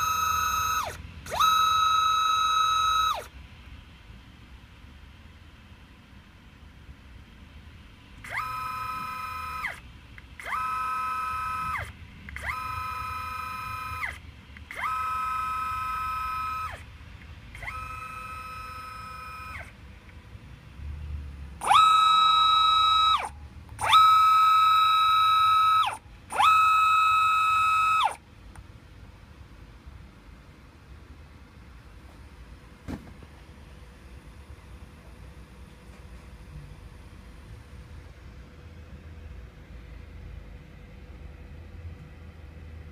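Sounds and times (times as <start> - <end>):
stepper motor whining: 0.0 - 3.3, 8.2 - 16.9, 17.5 - 19.8, 21.6 - 28.2.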